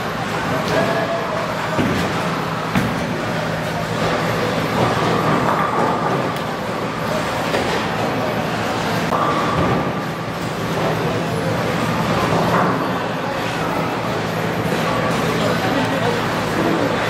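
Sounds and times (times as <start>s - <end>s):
bowling balls rolling: 1.4s - 8.2s.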